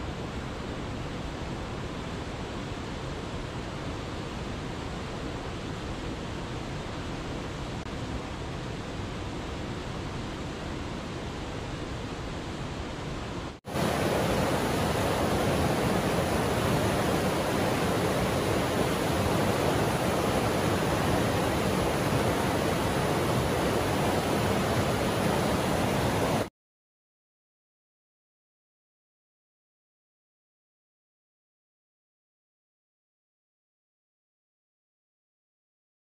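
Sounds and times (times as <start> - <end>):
waterfall rushing: 13.7 - 26.5.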